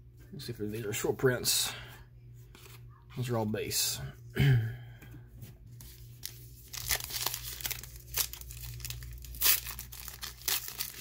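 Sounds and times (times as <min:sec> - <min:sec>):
card pack wrapper tearing and crinkling: 0:06.1 - 0:11.0.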